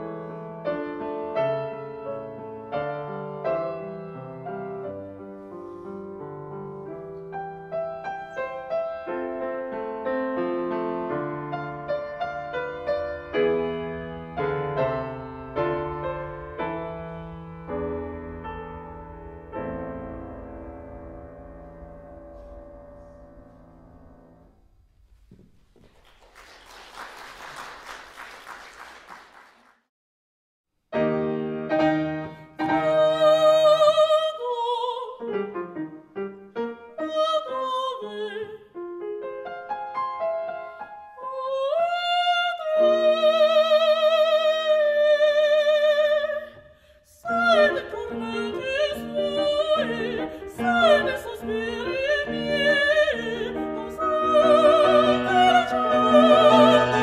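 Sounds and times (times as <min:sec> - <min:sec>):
piano playing: 0:00.0 - 0:25.1, 0:30.9 - 0:46.4, 0:47.3 - 0:57.0
applause: 0:25.8 - 0:29.9
classical singer singing aria: 0:32.0 - 0:39.7, 0:40.4 - 0:57.0.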